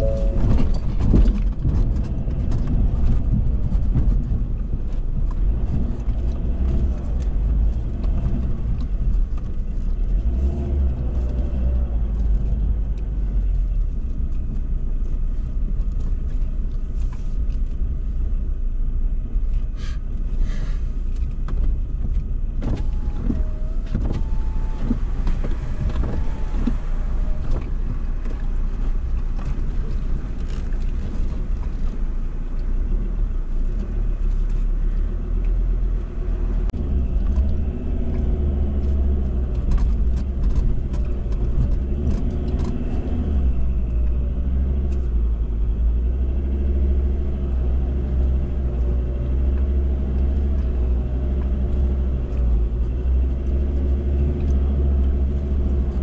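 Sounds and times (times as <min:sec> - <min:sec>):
vehicle knocking and squeaking: 0:00.0 - 0:10.2, 0:21.2 - 0:32.1, 0:36.8 - 0:45.3
engine and tyres rumbling: 0:00.0 - 0:56.0.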